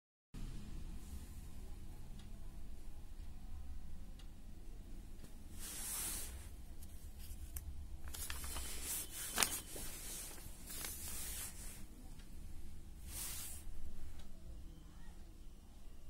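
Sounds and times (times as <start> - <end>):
paper pages rustling: 5.6 - 11.8
sharp paper crackle: 7.5 - 11.7.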